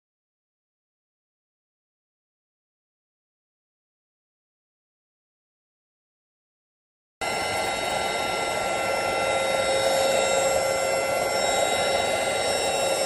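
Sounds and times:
stick vacuum motor whine: 0:07.2 - 0:13.0.

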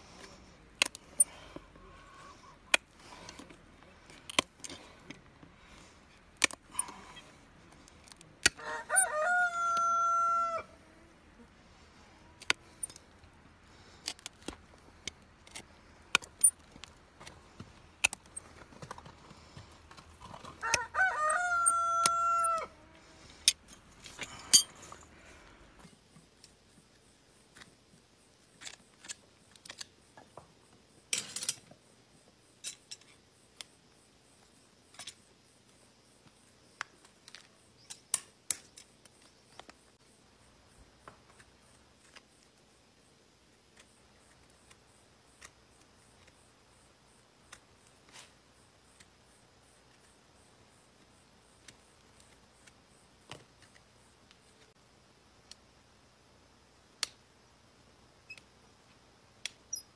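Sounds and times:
rooster crowing: 0:08.6 - 0:10.8, 0:20.6 - 0:23.1.

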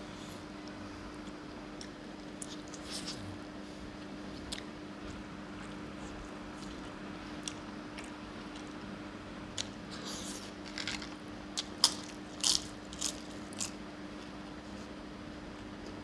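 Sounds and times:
faint steady hum: 0:00.0 - 0:16.0
crunching crisp papad: 0:09.6 - 0:15.0.

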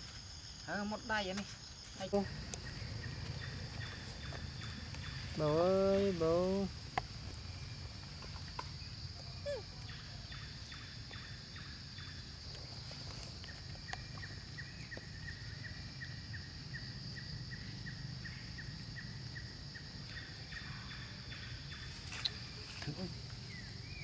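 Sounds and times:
high insect drone: 0:00.0 - 0:24.0
rapid chirping call: 0:02.0 - 0:06.7
low rumble: 0:02.2 - 0:05.5.

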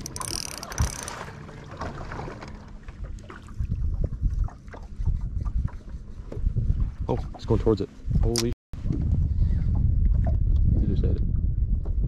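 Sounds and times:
water lapping against boat hull: 0:00.0 - 0:10.8
wind buffeting microphone: 0:03.0 - 0:12.0.

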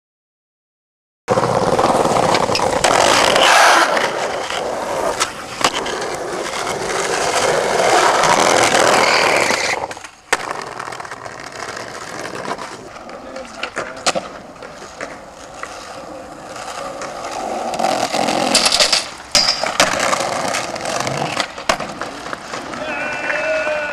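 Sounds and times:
skateboard clacks: 0:01.3 - 0:23.9
skateboard wheels rolling on asphalt: 0:01.3 - 0:23.9.

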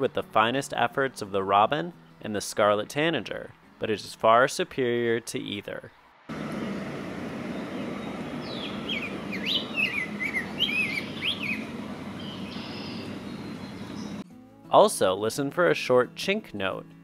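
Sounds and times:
low background rumble: 0:06.3 - 0:14.2
bird singing warbled phrase: 0:06.6 - 0:14.2.

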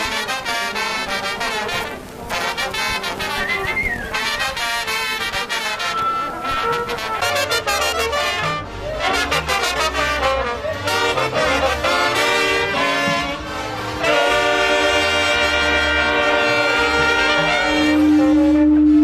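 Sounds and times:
brass band playing: 0:00.0 - 0:19.0.

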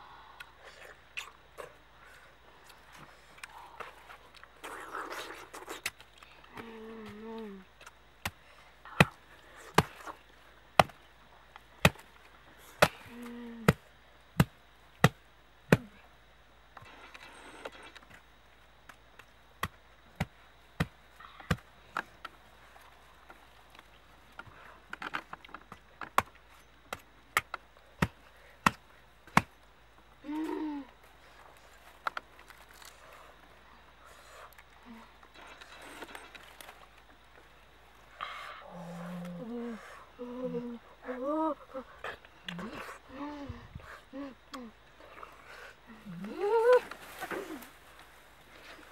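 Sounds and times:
cleaver chopping fruit: 0:10.8 - 0:11.0, 0:26.9 - 0:29.6.

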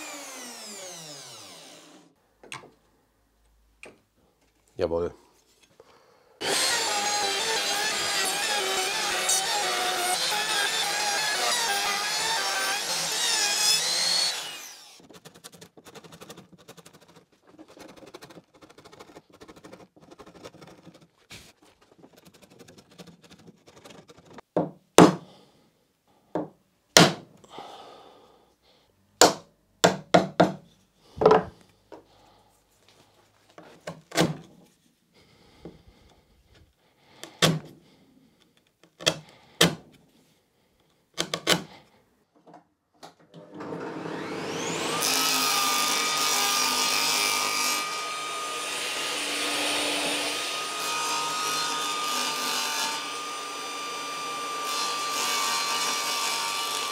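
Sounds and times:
chisel being struck on wood: 0:29.2 - 0:30.6.

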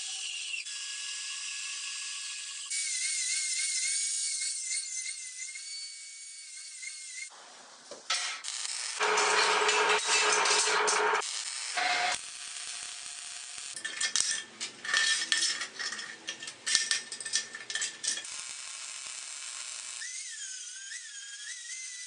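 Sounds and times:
welding hiss: 0:08.0 - 0:14.5, 0:16.8 - 0:21.5
angle grinder whine on steel: 0:08.1 - 0:21.8
sharp metallic clicks and clinks: 0:13.8 - 0:18.3.

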